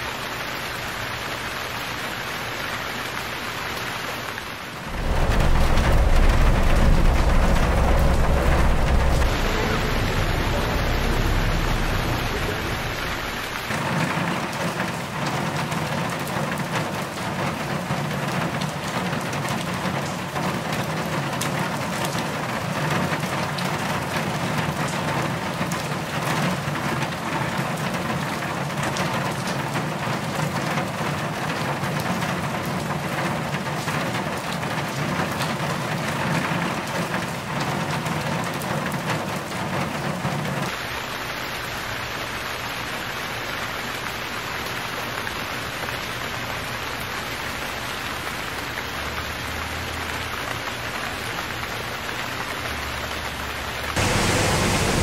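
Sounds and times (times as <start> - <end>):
heavy rain pouring: 0.0 - 55.0
deep low rumble: 4.9 - 13.8, 54.0 - 55.0.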